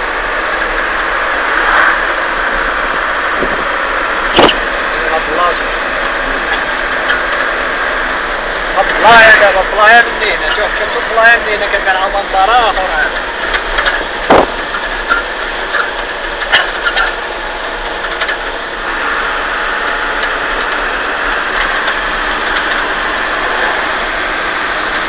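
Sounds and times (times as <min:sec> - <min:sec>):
vehicle running: 0:00.0 - 0:25.0
loud knock: 0:14.3 - 0:14.6.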